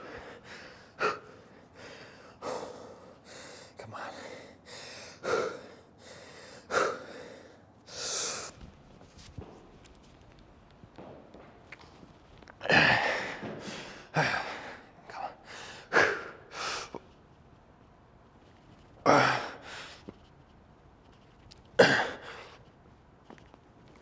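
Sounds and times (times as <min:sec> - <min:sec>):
man exhaling and gasping from exertion: 0:12.6 - 0:17.0, 0:19.0 - 0:19.8.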